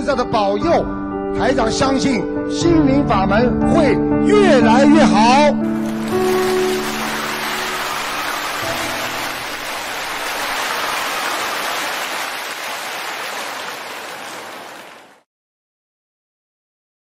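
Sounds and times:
large crowd applauding: 5.6s - 15.3s.

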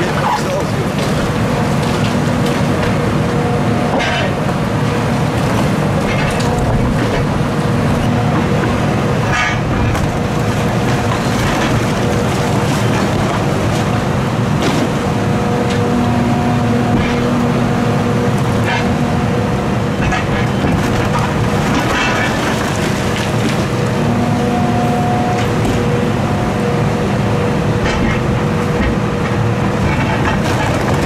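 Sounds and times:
excavator engine and hydraulics whine: 0.0s - 31.0s
falling debris: 20.0s - 23.9s.

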